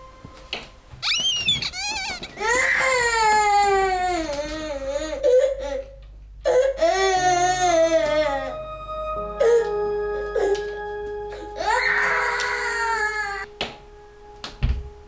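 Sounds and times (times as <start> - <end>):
rubber duck toy squeaking: 1.0 - 2.4
baby crying: 1.0 - 8.6, 11.3 - 13.5.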